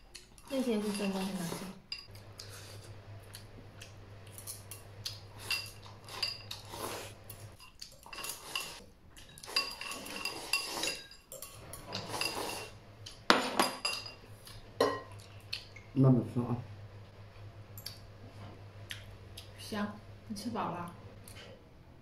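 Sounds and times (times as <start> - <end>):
chopsticks clinking on ceramic bowl: 0.2 - 2.6, 4.3 - 14.2.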